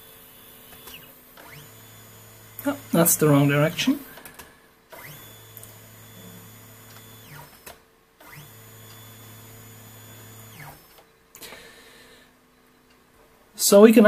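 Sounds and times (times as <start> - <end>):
stepper motor whine: 0.0 - 11.0.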